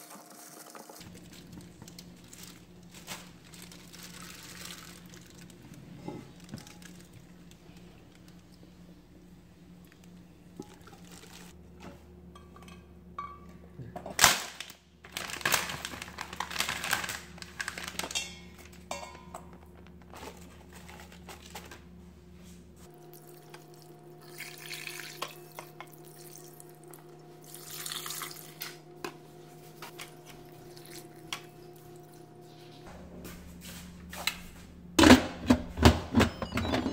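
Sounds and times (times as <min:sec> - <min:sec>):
water splashing into pot: 0:24.2 - 0:25.4.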